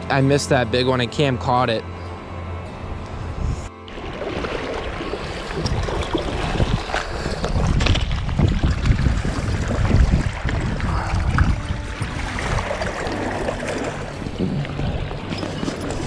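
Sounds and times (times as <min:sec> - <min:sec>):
wind buffeting microphone: 0:02.9 - 0:16.0
low water splashes: 0:03.8 - 0:16.0
stream water rushing around legs: 0:03.9 - 0:16.0.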